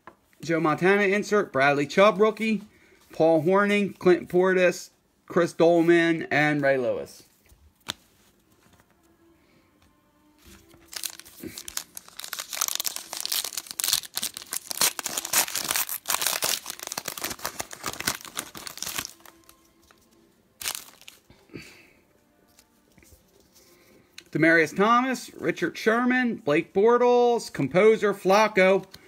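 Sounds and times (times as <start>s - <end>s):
wrapper tearing and crinkling: 10.4s - 20.0s, 20.6s - 21.3s.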